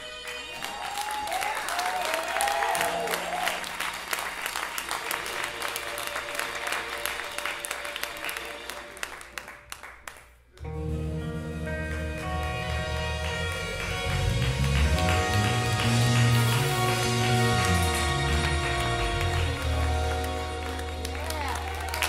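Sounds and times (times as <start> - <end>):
audience applauding and cheering: 0.0 - 22.0
whoops: 0.5 - 3.8, 21.2 - 22.0
soft held music: 10.3 - 22.0
band music with bass line: 10.6 - 22.0.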